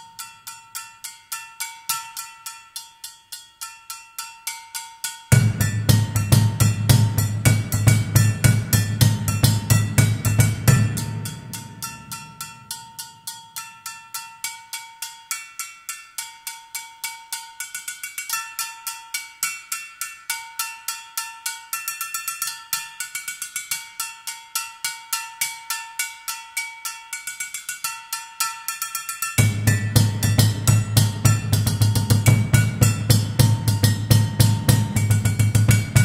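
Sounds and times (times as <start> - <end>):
metal bowls struck ringing: 5.3 - 13.9, 29.4 - 36.0.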